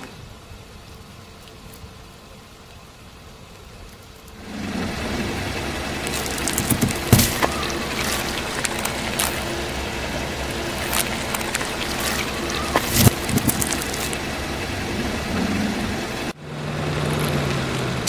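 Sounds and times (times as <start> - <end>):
tyre rolling on asphalt: 4.2 - 16.3
car engine running: 4.4 - 18.0
paper and grit crackling: 5.8 - 15.4.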